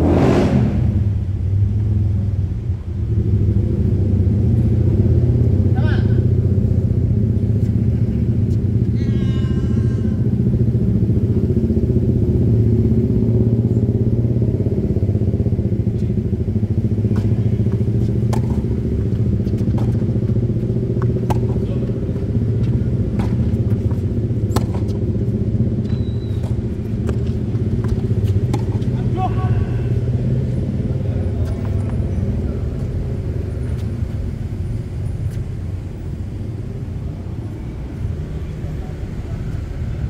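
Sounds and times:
low mechanical rumble: 0.8 - 40.0
tennis ball struck by rackets: 17.0 - 29.2.

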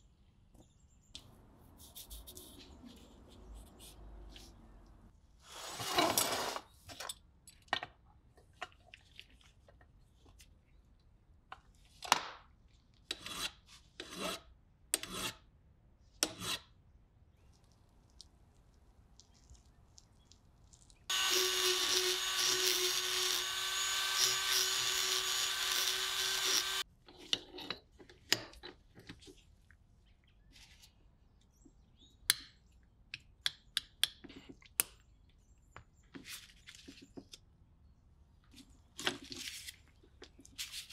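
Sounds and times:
rotary tool grinding metal: 21.1 - 26.8.

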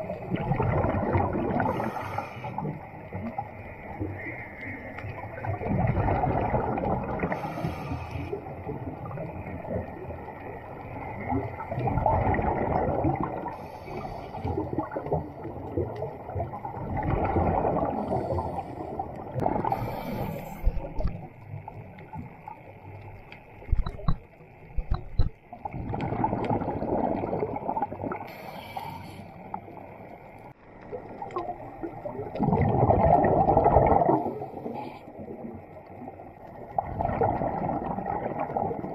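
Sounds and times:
gurgling rush of bubbles: 0.0 - 22.6, 23.6 - 28.4, 30.8 - 38.9
regulator hiss: 7.3 - 8.5, 13.5 - 14.6, 19.6 - 21.2, 28.2 - 29.8.

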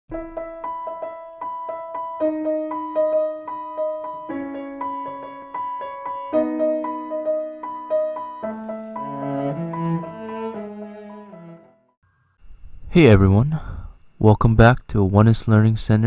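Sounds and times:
lower rich melodic line: 0.1 - 11.9
piano-like keyboard music: 0.1 - 12.0.

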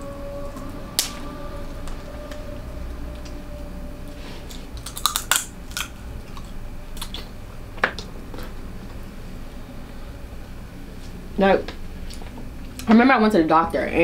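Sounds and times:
chewing and wet mouth sounds: 4.4 - 7.3
crab shell cracking: 4.7 - 7.3.

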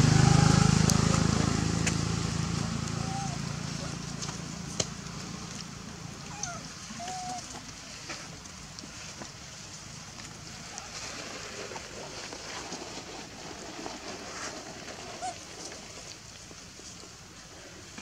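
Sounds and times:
rustles and taps on leaf litter: 0.8 - 18.0.

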